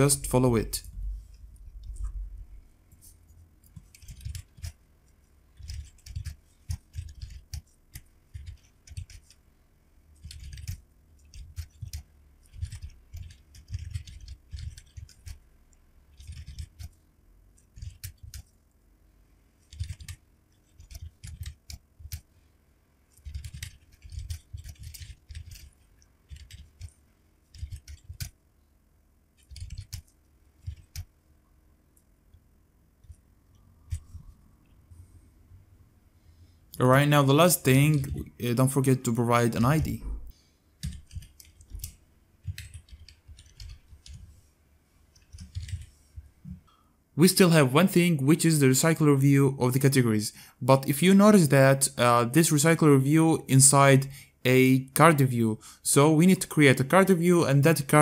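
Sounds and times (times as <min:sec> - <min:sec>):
keyboard typing: 0:03.6 - 0:04.8, 0:05.5 - 0:09.4, 0:10.2 - 0:15.4, 0:16.1 - 0:17.0, 0:17.6 - 0:18.6, 0:19.6 - 0:22.3, 0:23.1 - 0:28.4, 0:29.4 - 0:31.1, 0:40.8 - 0:44.3, 0:45.1 - 0:45.9.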